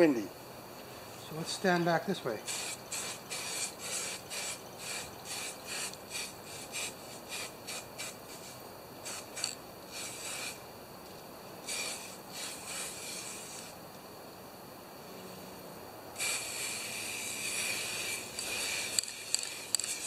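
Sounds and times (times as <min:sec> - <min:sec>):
aerosol spray can hissing: 0:02.4 - 0:10.6, 0:11.6 - 0:13.8, 0:16.2 - 0:20.0.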